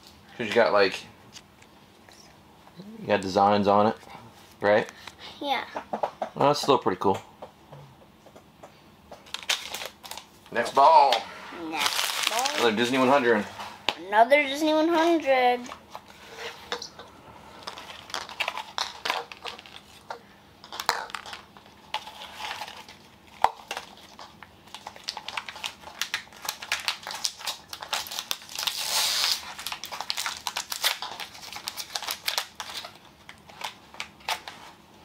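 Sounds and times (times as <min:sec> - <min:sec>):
plastic wrapping crinkling: 0:09.2 - 0:10.6, 0:11.8 - 0:13.5, 0:17.6 - 0:34.7.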